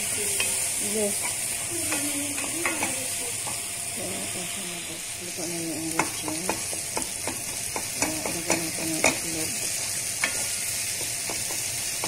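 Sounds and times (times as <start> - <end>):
vegetables sizzling in frying pan: 0.0 - 12.0
wooden spoon knocking against pan: 5.9 - 9.3, 11.0 - 11.7.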